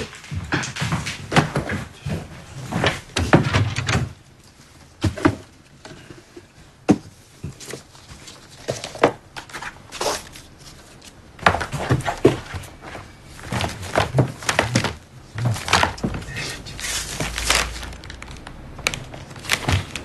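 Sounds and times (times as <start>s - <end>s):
cardboard box rustling: 6.9s - 20.0s.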